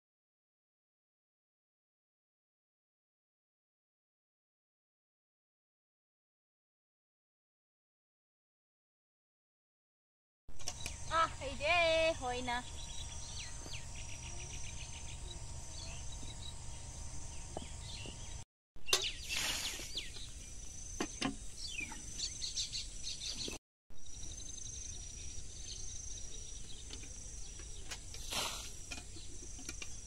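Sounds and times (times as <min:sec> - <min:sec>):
high insect drone: 0:10.6 - 0:18.4
birds chirping: 0:10.6 - 0:28.2
water splashing from a bucket: 0:28.2 - 0:29.0.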